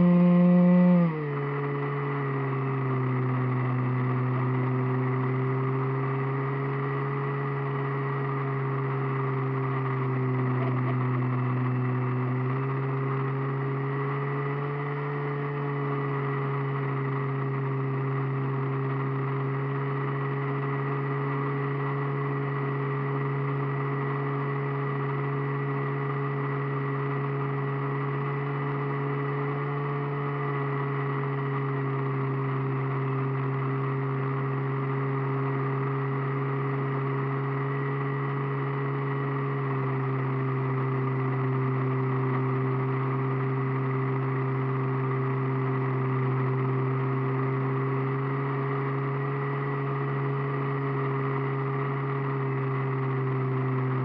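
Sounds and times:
model airplane motor humming: 0.0s - 15.2s.

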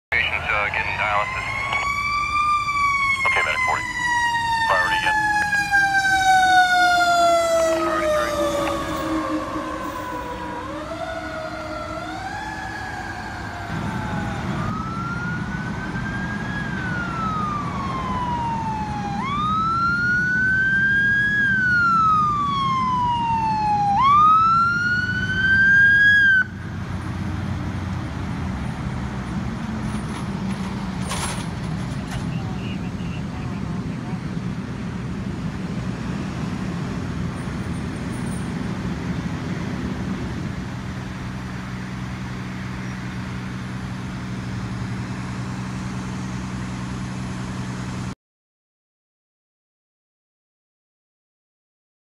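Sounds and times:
vehicle engine rumble: 0.1s - 48.2s
electronic wail siren: 0.6s - 26.7s
siren gliding down in pitch: 1.0s - 26.6s.

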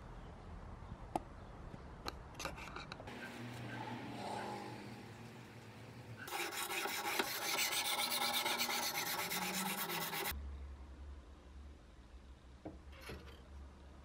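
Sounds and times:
whetstone scraping steel blade: 6.2s - 10.3s.

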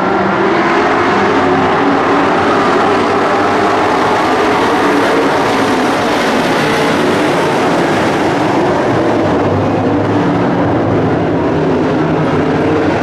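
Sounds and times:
truck engines racing: 0.0s - 13.0s.

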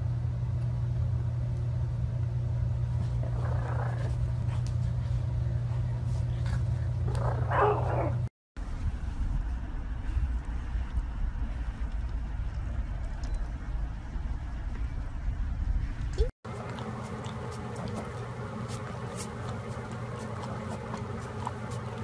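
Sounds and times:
steady low hum: 0.0s - 22.0s
puppy barking: 7.1s - 8.3s.

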